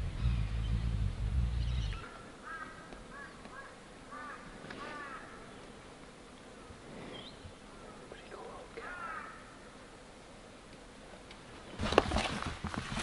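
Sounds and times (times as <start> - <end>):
wind buffeting microphone: 0.0 - 2.0
bird calling: 0.0 - 5.9, 6.5 - 9.8.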